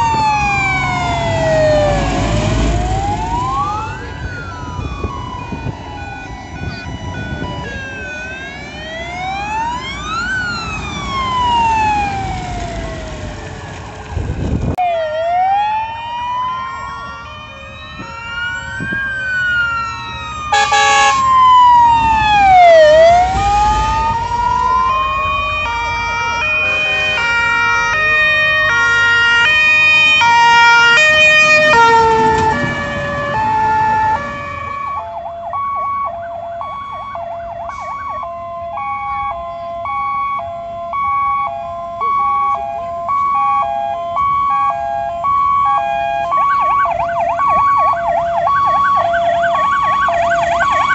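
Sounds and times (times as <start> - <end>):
wailing siren: 0.0 - 50.9
short loud horn blast: 20.5 - 21.2
fire truck horns stepping pitches: 20.5 - 21.5, 24.0 - 50.9.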